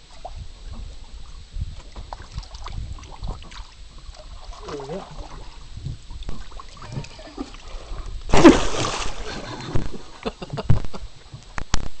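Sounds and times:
fish splashing into water: 8.3 - 10.2.

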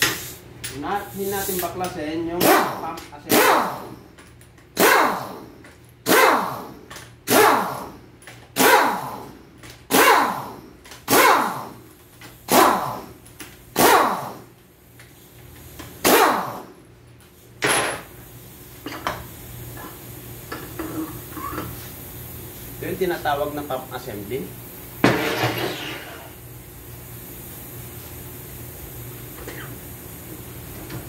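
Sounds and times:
pneumatic impact wrench bursts: 0.0 - 19.9.

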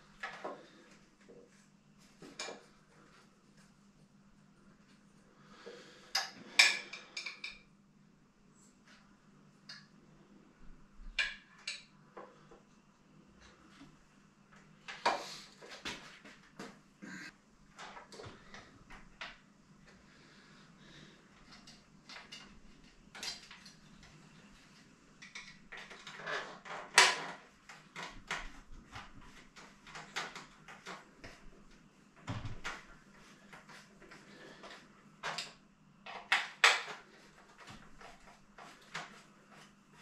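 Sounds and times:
tools and bike parts clinking: 21.5 - 23.8.

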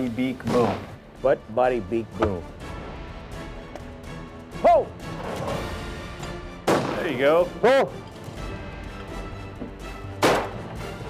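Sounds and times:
background music: 0.0 - 11.0
shotgun shot: 0.5 - 1.0, 6.6 - 7.2, 10.2 - 10.6.

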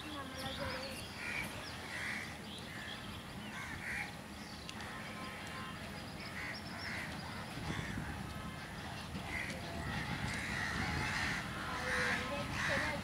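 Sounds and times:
crows cawing: 1.2 - 2.3, 3.5 - 4.1, 7.7 - 8.1, 10.3 - 13.0.

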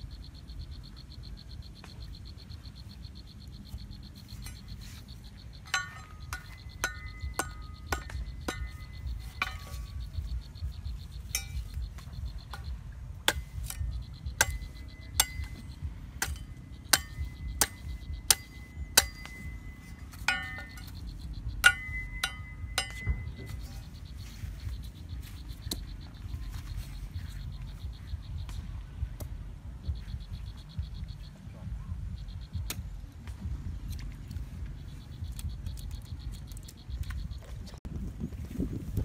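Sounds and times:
machete chopping bamboo: 16.2 - 21.0.

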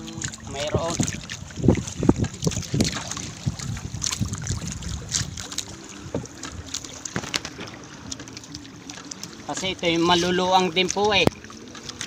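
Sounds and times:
wind buffeting microphone: 0.0 - 7.7
water dripping and splashing: 0.0 - 12.0
taps and knocks on boat: 6.0 - 7.8.

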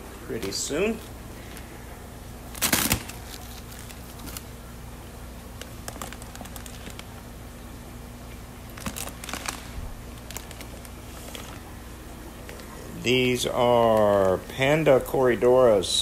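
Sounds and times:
steady low hum: 0.0 - 16.0
plastic bags crinkling: 2.4 - 4.6, 5.6 - 7.3, 8.7 - 11.7.

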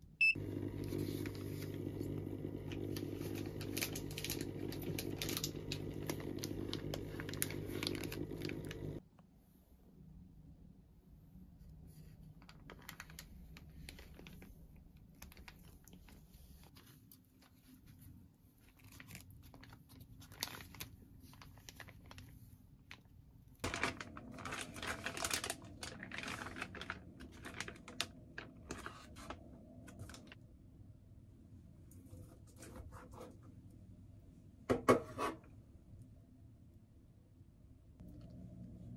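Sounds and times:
plastic bag crinkling: 0.4 - 9.0, 12.3 - 18.0, 18.6 - 30.4.

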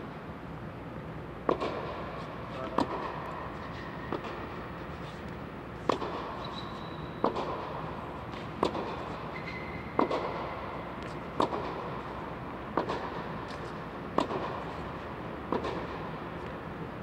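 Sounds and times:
steady background noise: 0.0 - 17.0
tennis ball struck by rackets: 1.4 - 2.1, 5.8 - 6.5, 7.2 - 9.1, 9.9 - 12.0, 12.7 - 14.7, 15.4 - 16.1.

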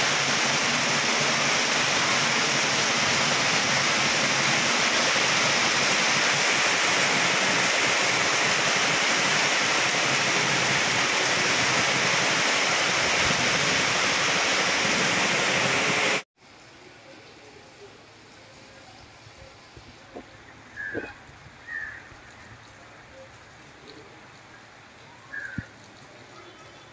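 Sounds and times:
heavy rain pouring: 0.0 - 26.9
quiet outdoor background: 16.4 - 26.9.

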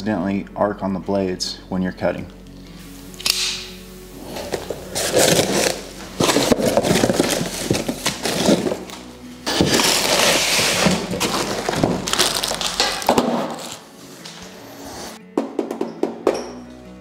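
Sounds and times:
foam and plastic wrap crackling: 4.1 - 14.5
cardboard flaps scraping: 4.2 - 15.2.

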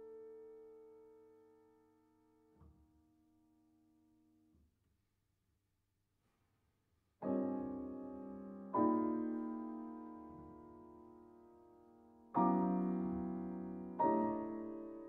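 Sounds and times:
piano chords: 7.2 - 15.0.

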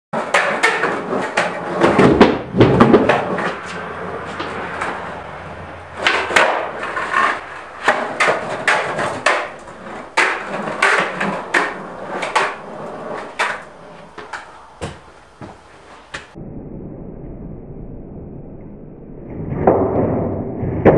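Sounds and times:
skateboard tail clacks: 0.2 - 16.4
skateboard wheels rolling on concrete: 0.2 - 16.4.

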